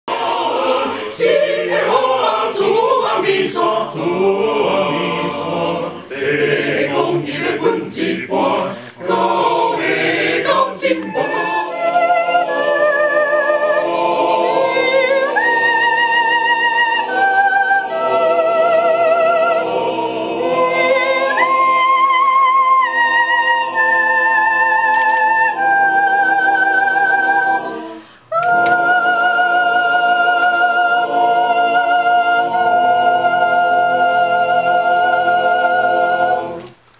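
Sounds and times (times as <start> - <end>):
mixed choir singing a cappella: 0.0 - 36.8.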